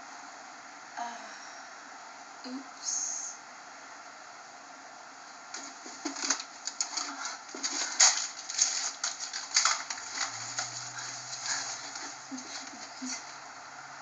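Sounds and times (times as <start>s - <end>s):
faint low hum: 0.0s - 14.0s
rustles and clicks of handling: 5.5s - 13.4s.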